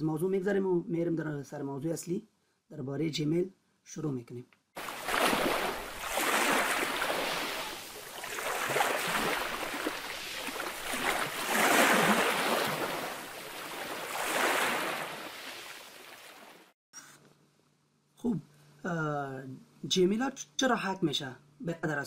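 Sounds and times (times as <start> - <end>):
rushing splashing water: 4.8 - 16.7.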